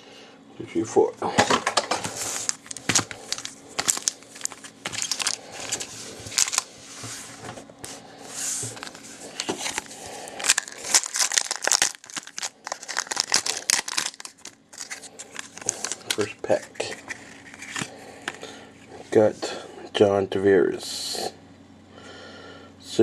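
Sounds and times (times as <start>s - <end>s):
foil packs crinkling: 1.6s - 6.8s, 8.6s - 18.5s
foil pack tearing open: 2.1s - 6.7s, 8.7s - 18.0s.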